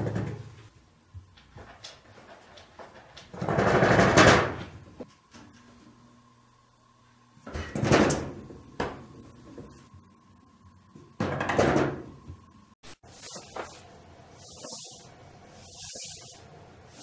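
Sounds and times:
door clattering loudly: 3.3 - 4.7.

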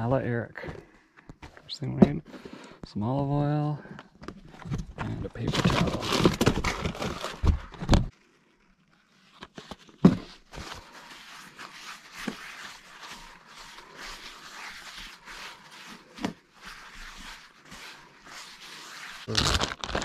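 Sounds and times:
rummaging in plastic tote: 4.5 - 8.1
paper towel rubbing skillet: 10.3 - 19.4.

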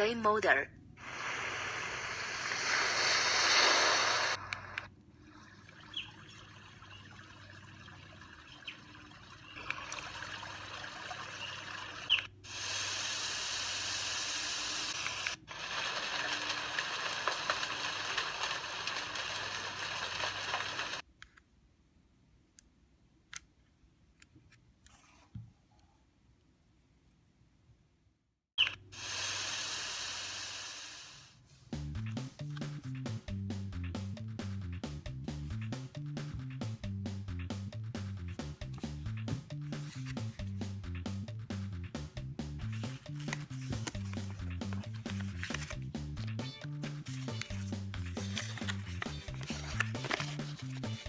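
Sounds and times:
sound machine background noise: 4.4 - 21.0.

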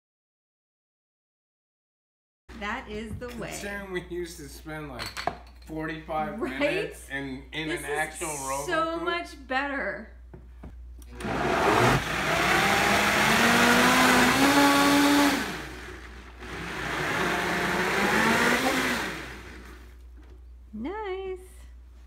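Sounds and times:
blender motor running: 11.0 - 19.9.

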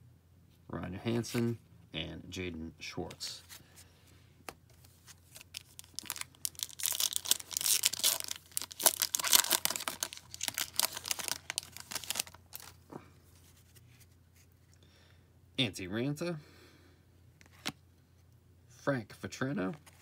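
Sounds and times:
foil wrapper tearing and crinkling: 5.3 - 12.8.

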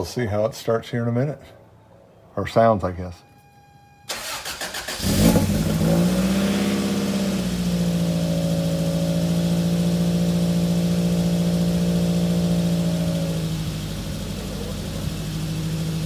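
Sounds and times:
car engine cranking and idling: 4.1 - 16.0.

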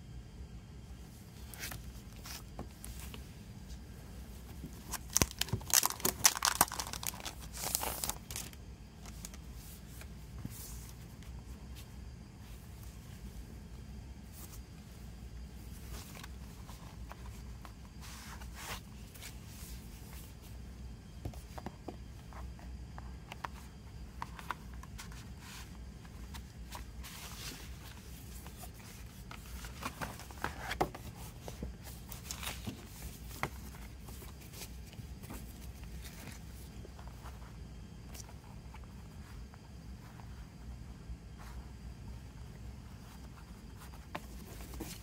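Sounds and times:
paper rustling: 4.4 - 11.0, 24.2 - 37.5.

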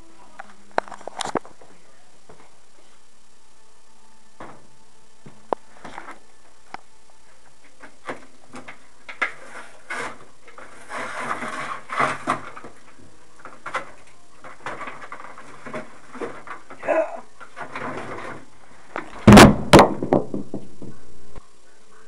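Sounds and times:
rustling: 4.4 - 19.5.

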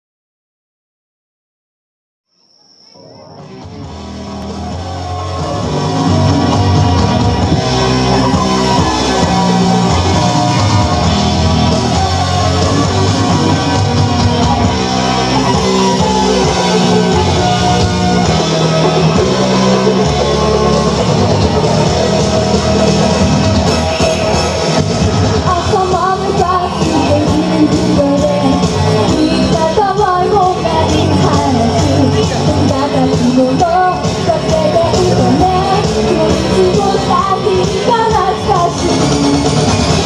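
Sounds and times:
pop-rock music with guitar: 3.6 - 40.0
girl singing into a microphone: 25.5 - 39.2.

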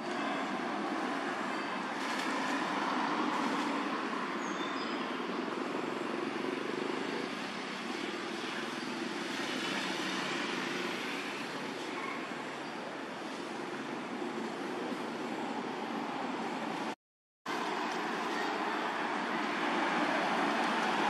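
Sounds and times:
rushing outdoor background noise: 0.0 - 21.0.

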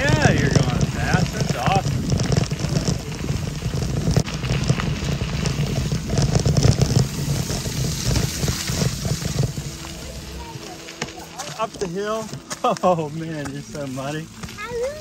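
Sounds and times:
wind buffeting microphone: 0.0 - 11.8
bicycle tyres on wet path: 0.0 - 15.0.

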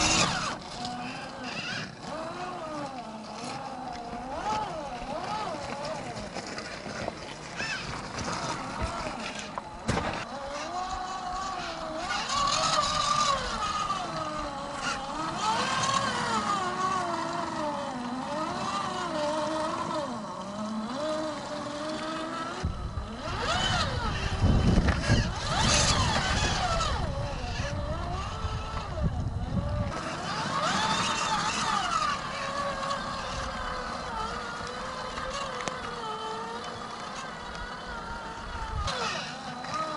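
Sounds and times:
electric motor whining: 0.0 - 39.9
wind buffeting microphone: 22.4 - 39.5.

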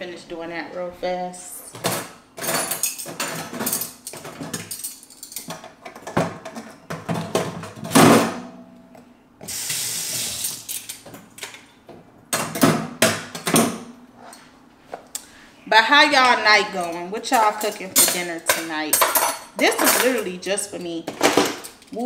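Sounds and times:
dishes clinking and knocking: 1.8 - 8.4, 16.8 - 20.3.

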